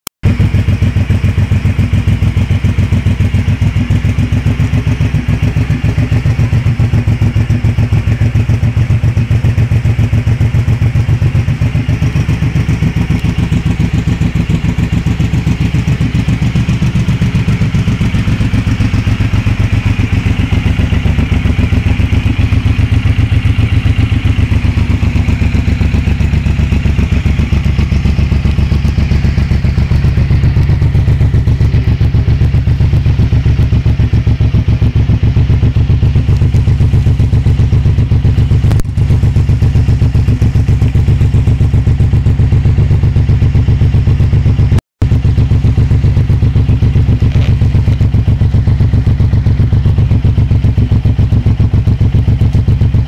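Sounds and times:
motorcycle engine idling: 0.2 - 53.0.

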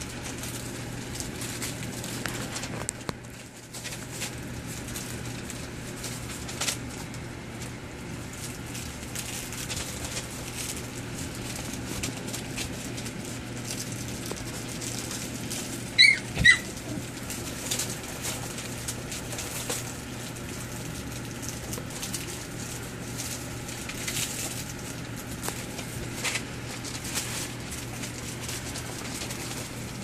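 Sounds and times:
paws scratching newspaper: 0.0 - 30.0
puppy yips: 15.9 - 17.0.

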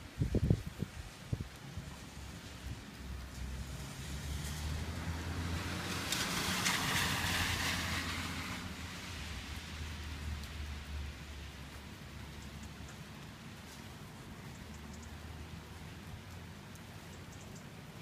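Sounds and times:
rain on a wet street: 0.0 - 18.0.

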